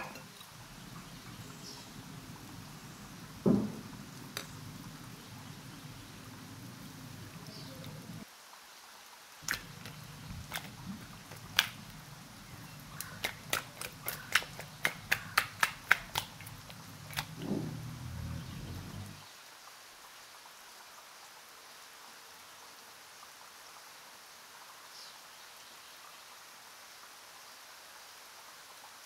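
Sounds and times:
chicken wings knocking in bowl: 9.4 - 11.9, 12.8 - 17.8.

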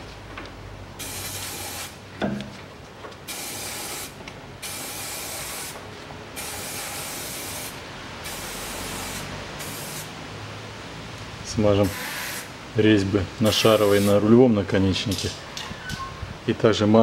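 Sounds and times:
aerosol spray can hissing: 1.0 - 2.0, 3.3 - 5.8, 6.4 - 10.1, 11.9 - 12.5.

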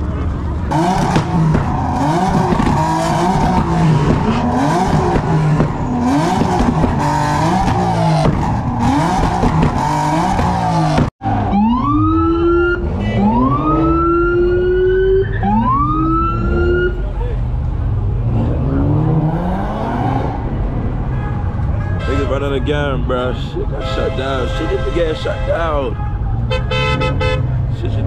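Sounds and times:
car engine revving: 0.0 - 25.3
tires squealing and hissing: 0.7 - 11.4
siren wailing: 9.8 - 17.0.

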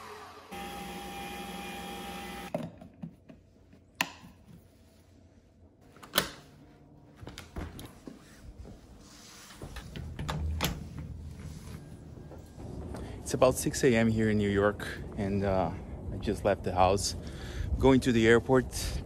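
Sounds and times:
coffee machine whirring: 0.0 - 2.5.

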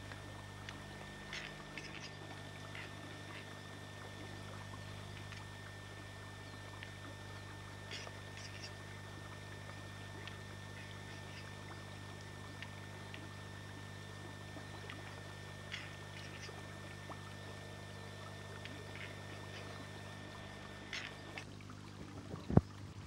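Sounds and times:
steady low hum: 0.0 - 23.0
faint bird clicks: 0.1 - 3.4, 7.9 - 8.8.

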